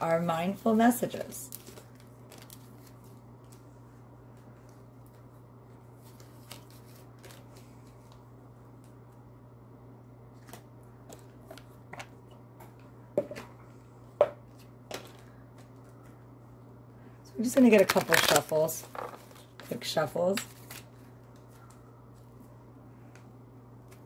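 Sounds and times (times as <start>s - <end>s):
low electrical hum: 0.0s - 24.0s
cards shuffling: 6.0s - 8.2s, 17.6s - 21.6s.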